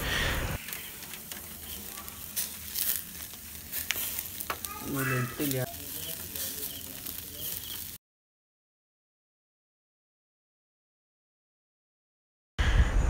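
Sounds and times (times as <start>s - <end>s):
chicken sizzling over embers: 0.0s - 8.0s.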